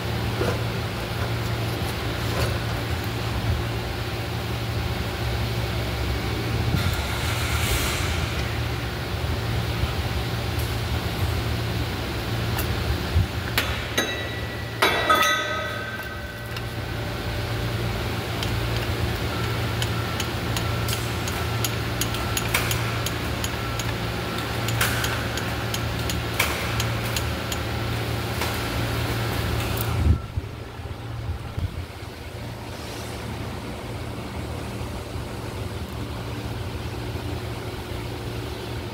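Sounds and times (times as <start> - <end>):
steady low hum: 0.0 - 38.9
metal clang: 13.6 - 16.8.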